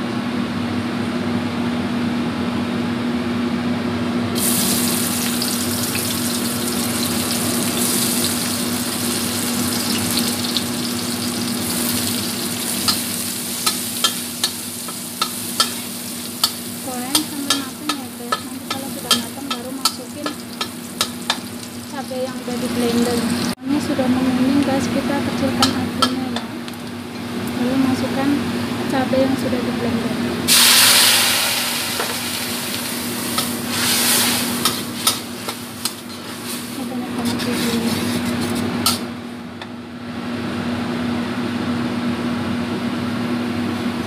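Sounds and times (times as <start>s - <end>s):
garlic sizzling in oil: 4.4s - 28.2s, 30.5s - 39.1s
steady low hum: 7.2s - 40.1s
metal spatula scraping wok: 33.0s - 39.0s.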